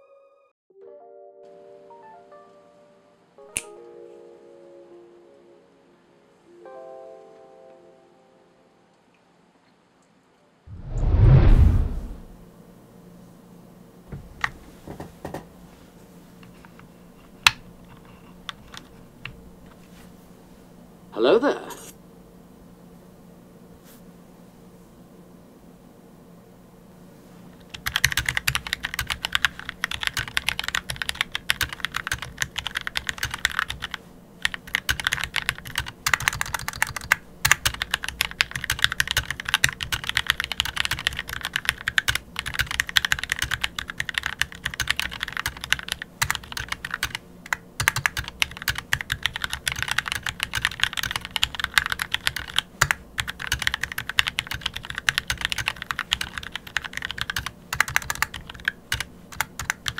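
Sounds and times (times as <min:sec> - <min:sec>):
fast typing on mechanical keyboard: 0:18.5 - 0:18.9, 0:27.6 - 0:59.9.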